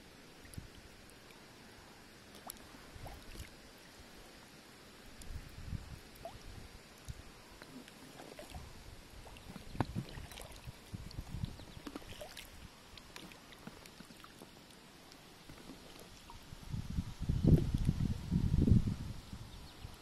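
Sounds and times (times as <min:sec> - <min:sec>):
water lapping around kayak: 0:00.2 - 0:04.5, 0:06.0 - 0:16.6.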